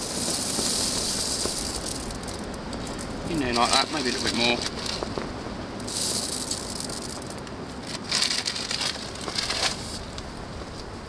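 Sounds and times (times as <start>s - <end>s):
small pellets rattling: 0.0s - 5.1s, 5.8s - 10.1s
plastic bag rustling: 0.0s - 5.2s, 5.9s - 10.1s.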